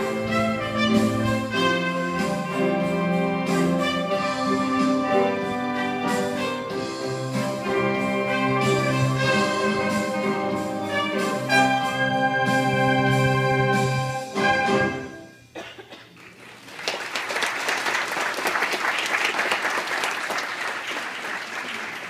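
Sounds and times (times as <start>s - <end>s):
brass and wind ensemble chords: 0.0s - 15.5s
congregation applauding: 16.1s - 22.0s.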